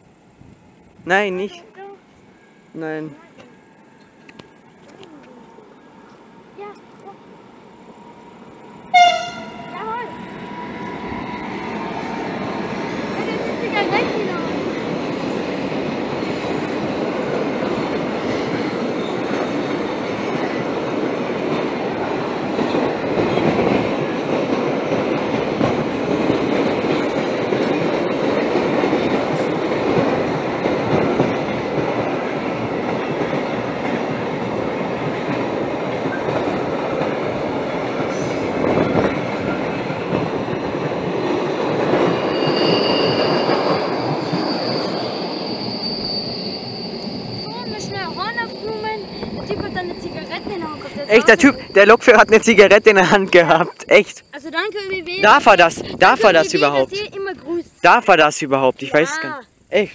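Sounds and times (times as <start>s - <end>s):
high wheel squeal: 16.2s - 20.7s, 38.1s - 39.8s, 42.0s - 54.4s.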